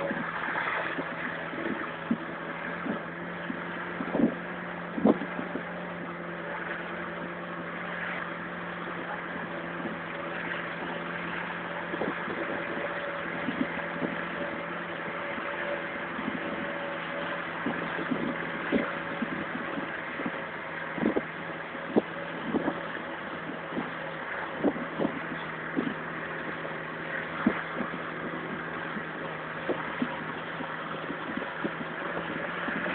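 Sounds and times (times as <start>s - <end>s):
vehicle engine and road hum: 0.0s - 32.9s.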